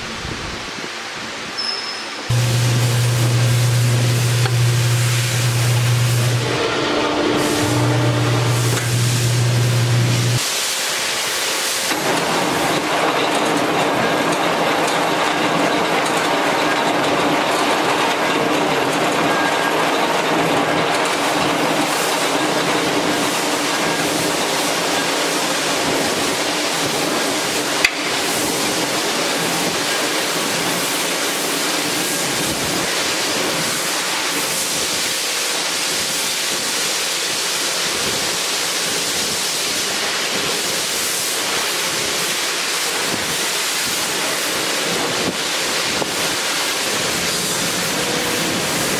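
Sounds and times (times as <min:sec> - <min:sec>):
band saw running: 0:02.3 - 0:10.6, 0:11.6 - 0:33.1.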